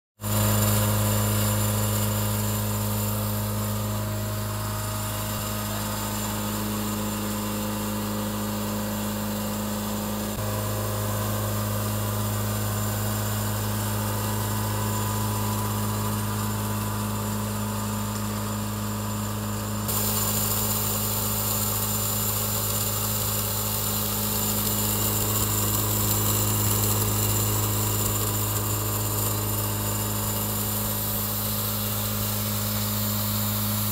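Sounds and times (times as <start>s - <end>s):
blower running with low hum: 0.2s - 33.9s
hiss of moving air: 19.9s - 33.9s.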